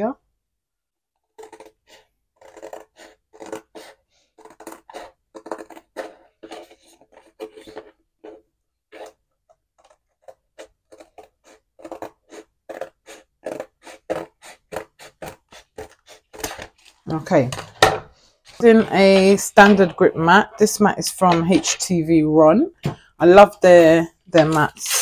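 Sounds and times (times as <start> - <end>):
scissors cutting cardboard: 1.2 - 17.0, 18.5 - 20.6, 23.6 - 25.0.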